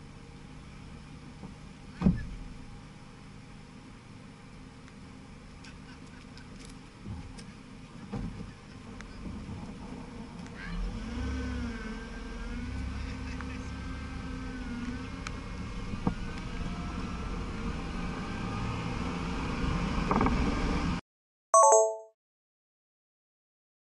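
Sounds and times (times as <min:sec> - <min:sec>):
road noise: 0:00.0 - 0:21.0
car engine accelerating: 0:08.9 - 0:21.0
short electronic chime: 0:21.6 - 0:22.2.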